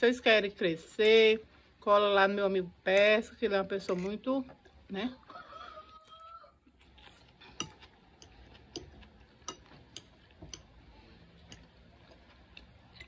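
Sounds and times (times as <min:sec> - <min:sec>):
quiet chewing: 0:04.6 - 0:13.0
fork clicking on a plate: 0:07.5 - 0:10.7.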